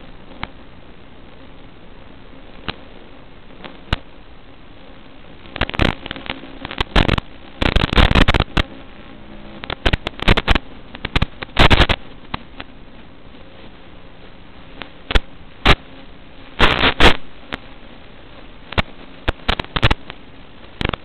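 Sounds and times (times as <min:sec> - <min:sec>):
crackling static bursts: 0:00.0 - 0:21.0
steady hiss: 0:00.0 - 0:21.0.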